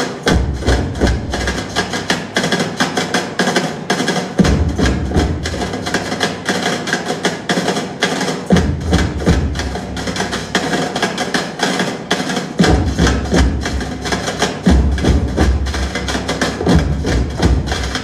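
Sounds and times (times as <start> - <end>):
percussion ensemble playing: 0.0 - 18.0
low booming drum strokes: 0.2 - 2.4, 4.4 - 6.0, 8.5 - 10.7, 12.6 - 18.0.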